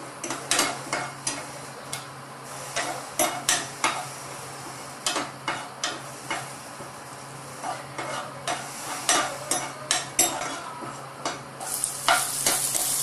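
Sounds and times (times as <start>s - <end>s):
seeds sizzling in hot oil: 0.1s - 10.6s, 11.2s - 13.0s
metal spoon scraping a pan: 2.5s - 4.3s, 5.0s - 6.6s, 7.4s - 13.0s.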